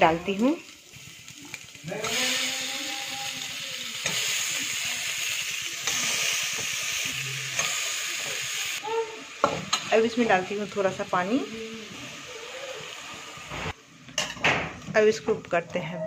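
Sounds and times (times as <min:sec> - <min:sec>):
vegetables sizzling in oil: 0:00.0 - 0:15.6.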